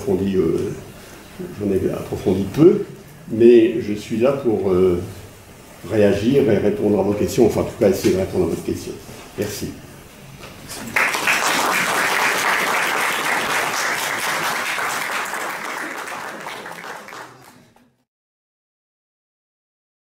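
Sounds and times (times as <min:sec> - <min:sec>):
audience applauding: 0:10.8 - 0:18.0.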